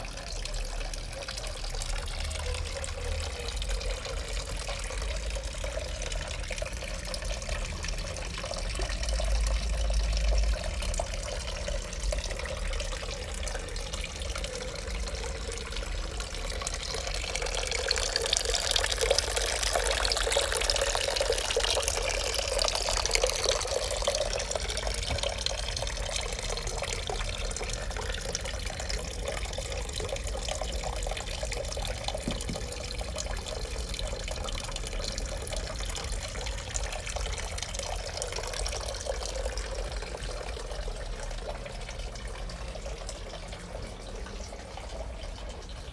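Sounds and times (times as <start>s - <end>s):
fountain water trickling: 0.0s - 45.9s.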